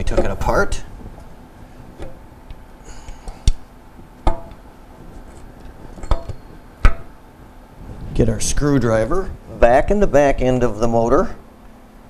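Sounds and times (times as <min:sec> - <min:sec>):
sharp clicks and knocks: 0:02.0 - 0:07.1.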